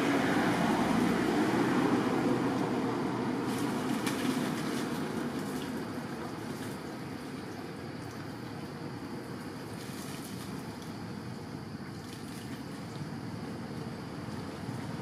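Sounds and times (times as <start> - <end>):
river water rushing: 0.0 - 10.6
faint splashes: 2.4 - 15.0.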